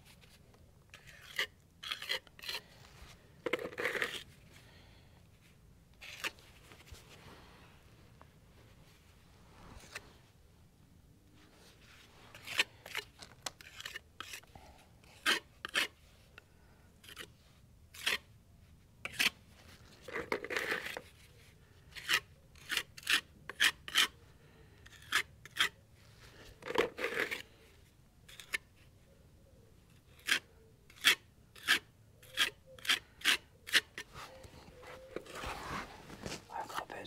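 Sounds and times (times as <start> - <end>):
hand tool scraping filler: 0.9 - 2.8, 3.4 - 4.3, 6.0 - 6.4, 12.3 - 16.0, 17.0 - 17.3, 17.9 - 18.3, 19.0 - 21.3, 21.9 - 24.2, 24.8 - 25.8, 26.4 - 27.7, 28.3 - 28.8, 29.9 - 36.4.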